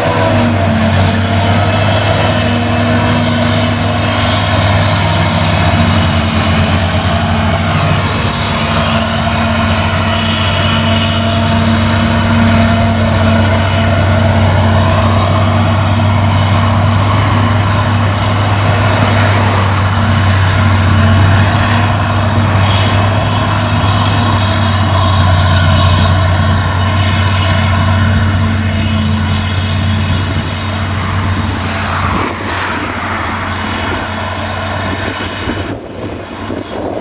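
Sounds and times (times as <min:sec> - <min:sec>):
tractor engine humming: 0:00.0 - 0:37.0.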